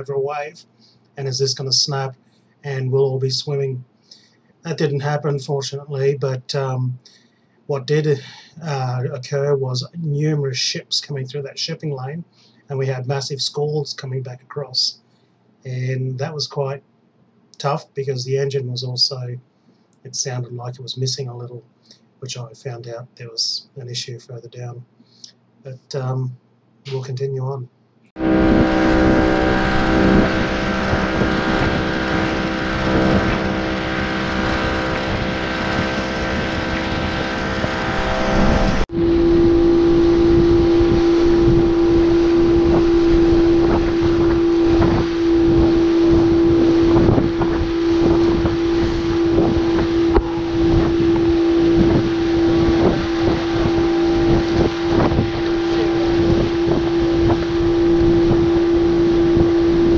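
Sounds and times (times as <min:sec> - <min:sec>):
outboard motor running: 0:28.2 - 0:59.9
water rushing along hull: 0:28.2 - 0:59.9
wind buffeting microphone: 0:28.2 - 0:59.9.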